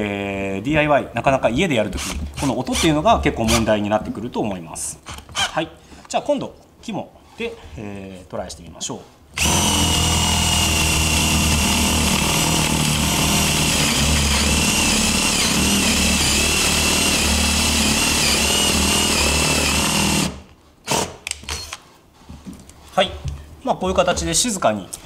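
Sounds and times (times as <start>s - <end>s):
person speaking: 0.0s - 5.0s, 5.6s - 9.2s, 22.9s - 25.0s
drill motor whine: 9.4s - 20.4s.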